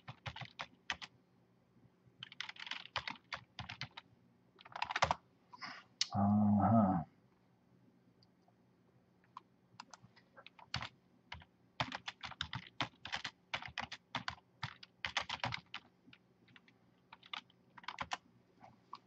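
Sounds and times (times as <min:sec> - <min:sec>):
computer keyboard typing: 0:00.0 - 0:01.1, 0:02.2 - 0:04.0, 0:04.6 - 0:05.2, 0:09.3 - 0:18.2.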